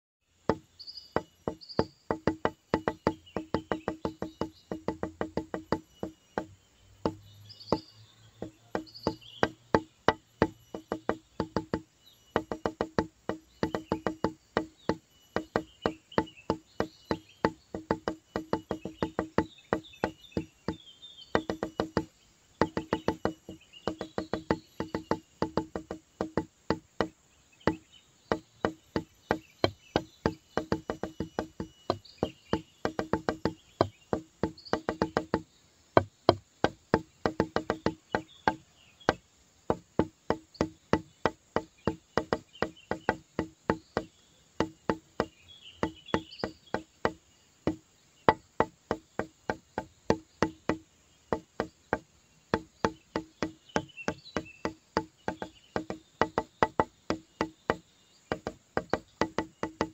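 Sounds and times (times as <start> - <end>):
light percussive tune: 0.4 - 27.1, 27.7 - 59.9.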